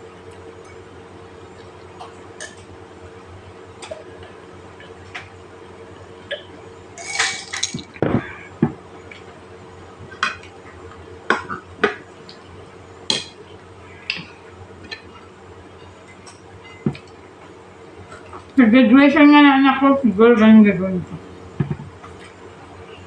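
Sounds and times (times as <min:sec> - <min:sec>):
dishes and utensils clinking: 0:07.0 - 0:07.9.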